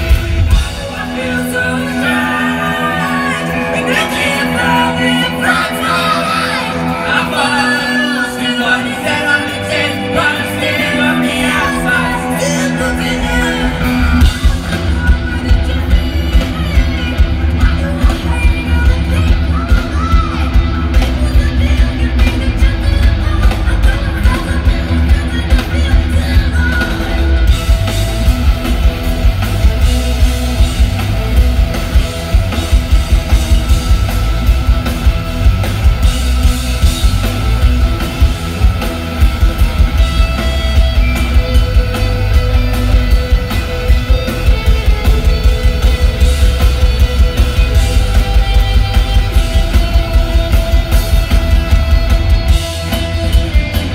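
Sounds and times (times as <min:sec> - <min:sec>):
rock band playing loudly: 0:00.0 - 0:53.9.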